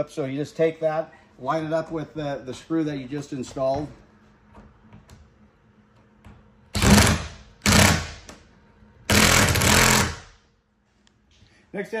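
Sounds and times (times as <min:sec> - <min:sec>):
cordless drill driving screw: 0:06.8 - 0:08.1, 0:09.1 - 0:10.2.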